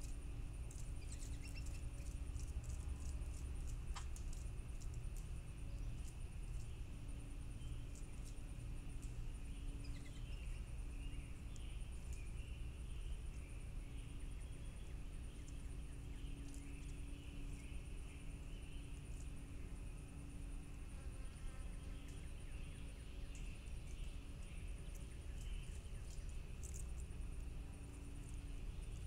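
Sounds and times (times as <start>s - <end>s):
small ticks: 0.0s - 13.7s, 14.3s - 29.0s
insect drone: 0.0s - 29.0s
birds twittering: 0.6s - 2.8s, 5.6s - 20.5s, 21.8s - 27.1s.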